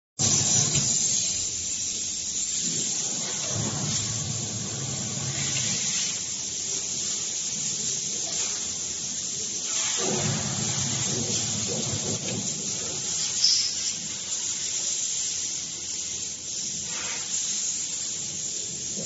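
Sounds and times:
sealing machine hiss: 0.2s - 19.0s.

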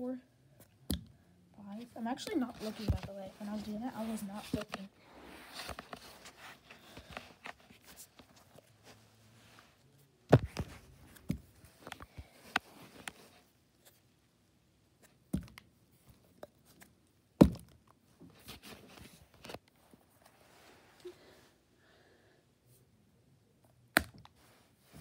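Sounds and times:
handling knocks and rustles: 1.8s - 9.1s, 10.3s - 14.0s.

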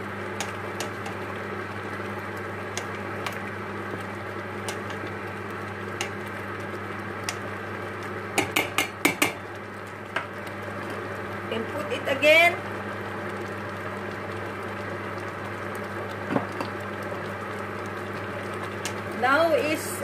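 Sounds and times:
spatula knocking pot: 8.4s - 9.4s.

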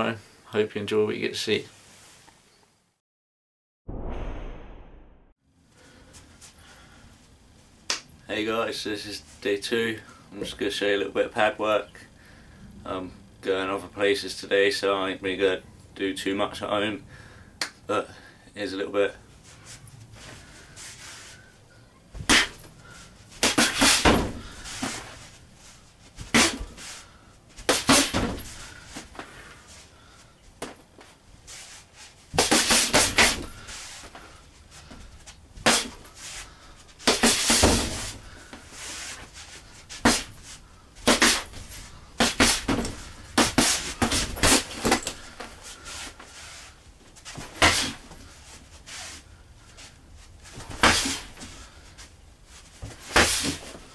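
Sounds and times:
punches hitting heavy bag: 22.2s - 22.7s, 23.4s - 24.9s, 26.2s - 26.8s, 27.7s - 28.6s, 32.4s - 33.6s, 42.2s - 45.2s.

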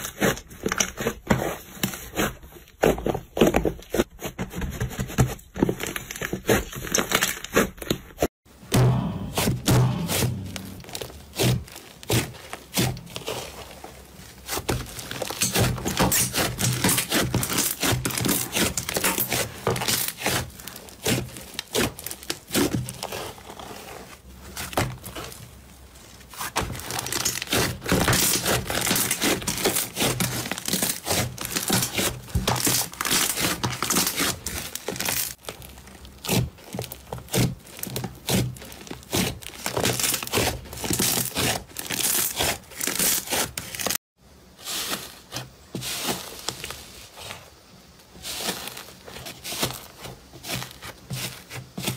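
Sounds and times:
slime crackling and popping: 14.5s - 23.4s, 26.4s - 44.0s.

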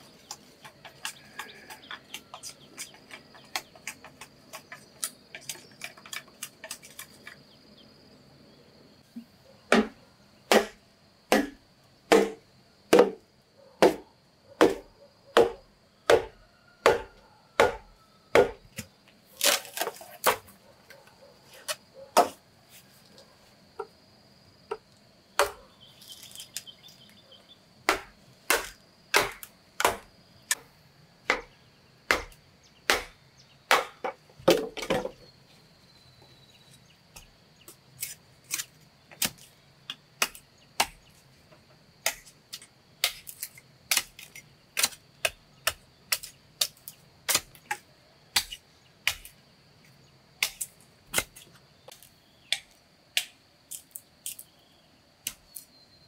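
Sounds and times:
chopping blows on wood: 9.7s - 13.2s, 13.8s - 14.0s, 14.6s - 18.9s, 27.9s - 30.1s, 31.3s - 31.5s, 32.1s - 35.1s.

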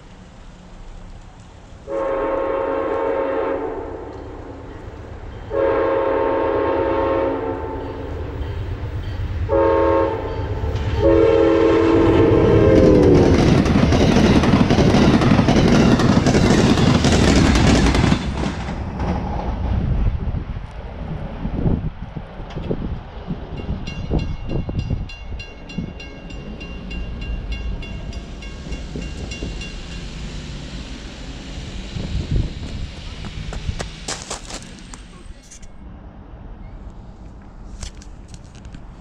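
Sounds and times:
train rumbling and clattering by: 0.0s - 39.0s
train horn blasts: 1.8s - 4.8s, 5.4s - 8.6s, 9.4s - 13.4s.

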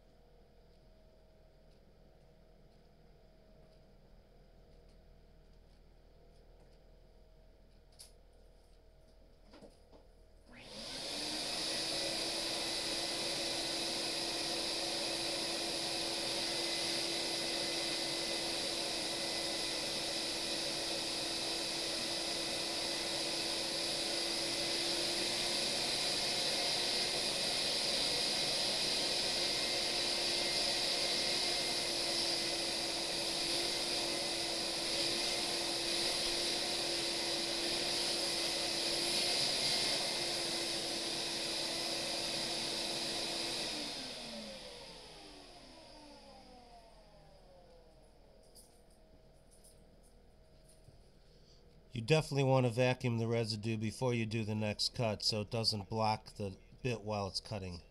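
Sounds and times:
shop vacuum humming: 10.4s - 48.7s, 51.3s - 57.8s
hose sucking up sawdust: 10.6s - 45.3s.

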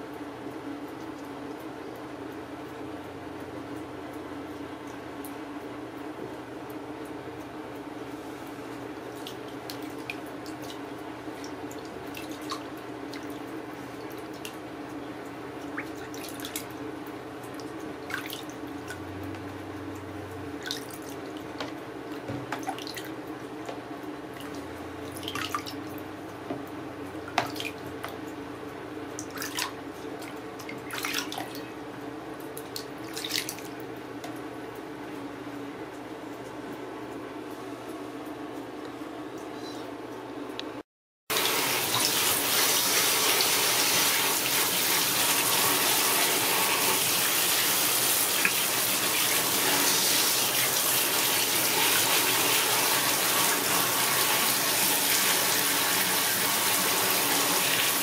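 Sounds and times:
water splashing and dripping: 9.0s - 15.0s, 15.6s - 16.8s, 17.4s - 23.1s, 24.4s - 26.0s, 27.3s - 28.2s, 29.2s - 31.7s, 32.4s - 33.8s, 41.3s - 58.0s.

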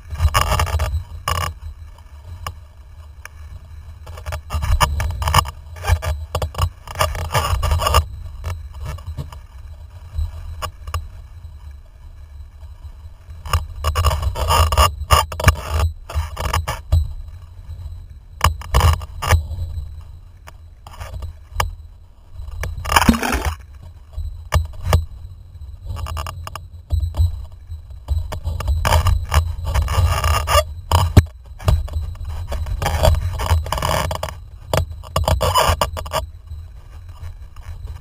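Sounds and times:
wind rumbling on microphone: 0.0s - 38.0s
knocks and scrapes from rig: 22.7s - 23.6s.

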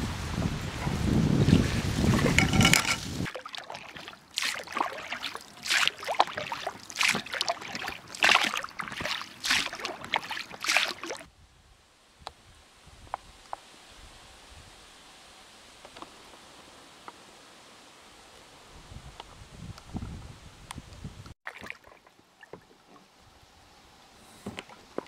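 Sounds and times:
wind buffeting microphone: 0.0s - 3.3s, 18.7s - 21.3s
oars splashing in water: 1.6s - 11.3s, 21.5s - 23.2s.

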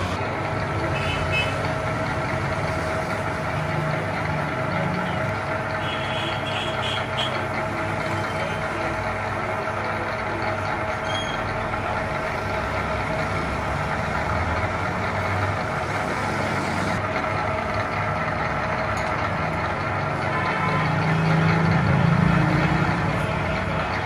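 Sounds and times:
machine humming: 0.0s - 24.0s.

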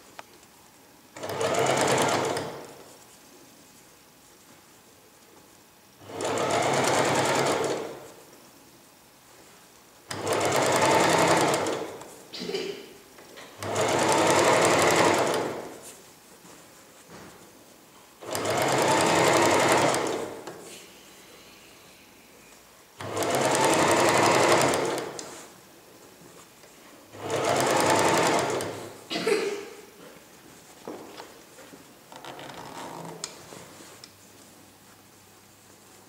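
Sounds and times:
electric sewing machine stitching: 1.2s - 2.8s, 6.0s - 8.1s, 10.1s - 12.0s, 13.6s - 15.8s, 18.2s - 20.4s, 23.0s - 25.4s, 27.2s - 29.0s.

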